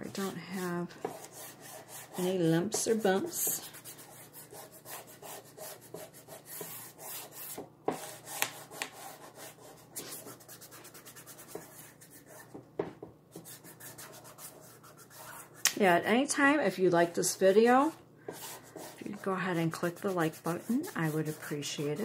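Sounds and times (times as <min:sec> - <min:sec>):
hands rubbing a transfer on a board: 0:06.1 - 0:12.6.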